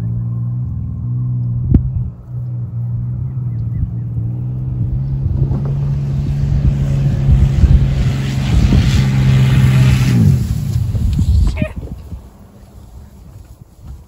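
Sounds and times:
van engine passing by: 0.0 - 13.8
tyre noise: 10.0 - 14.0.

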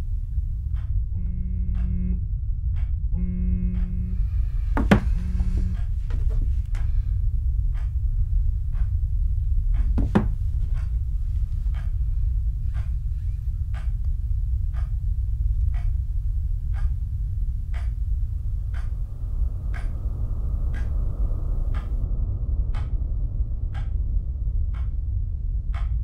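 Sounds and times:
clock ticking: 0.0 - 2.1, 2.7 - 22.0, 23.7 - 24.0, 25.7 - 26.0
loud low drone: 0.0 - 26.0.

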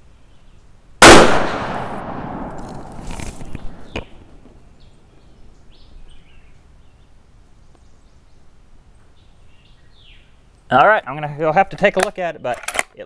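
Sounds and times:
rifle shot echo: 1.0 - 3.9
bird chirps: 3.4 - 10.7.

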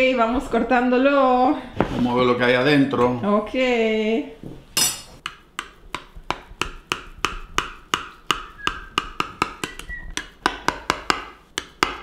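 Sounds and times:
knife tapping glass dish: 4.8 - 12.0.

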